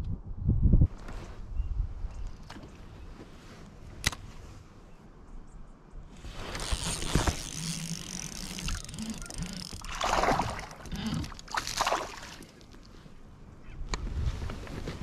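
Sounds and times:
water splashing around kayak: 6.4 - 13.0.

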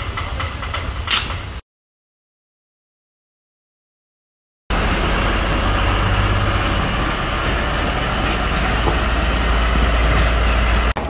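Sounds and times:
hose water spraying hiss: 4.7 - 10.9
fire engine droning: 4.7 - 11.0.

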